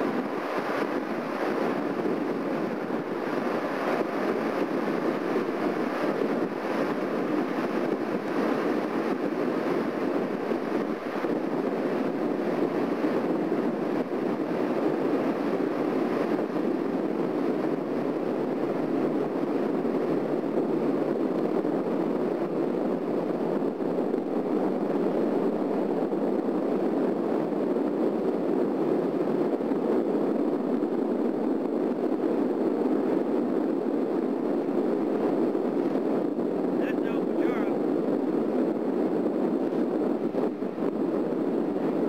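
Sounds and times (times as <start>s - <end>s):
ship deck rushing ambience: 0.0s - 22.4s, 34.4s - 38.4s.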